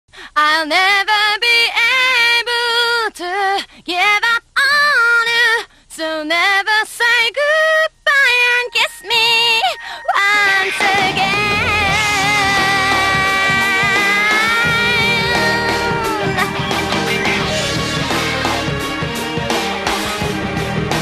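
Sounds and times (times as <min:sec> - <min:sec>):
woman singing unaccompanied: 0:00.3 - 0:17.6
band with bass and drums: 0:10.5 - 0:21.0.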